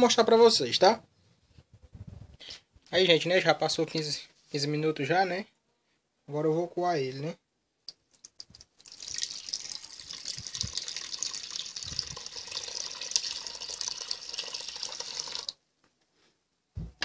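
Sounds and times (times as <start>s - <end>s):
liquid splashing pour: 8.3s - 15.6s.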